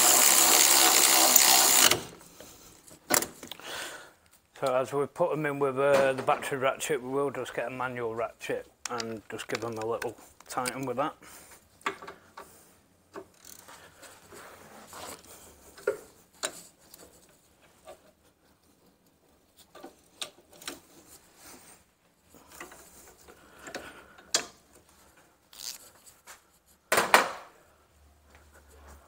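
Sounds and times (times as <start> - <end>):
hand ratchet clicking: 0.0 - 2.1, 13.2 - 13.6, 25.6 - 25.8.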